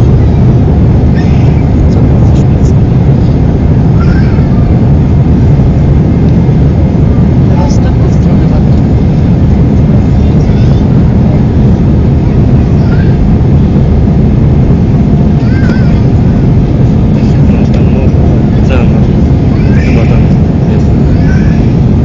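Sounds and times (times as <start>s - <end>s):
airliner cabin roar: 0.0s - 22.0s.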